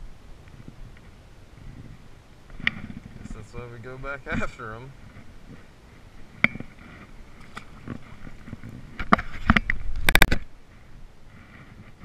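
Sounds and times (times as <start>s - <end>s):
hand bumping and scraping camera: 2.5s - 3.3s, 6.4s - 10.5s.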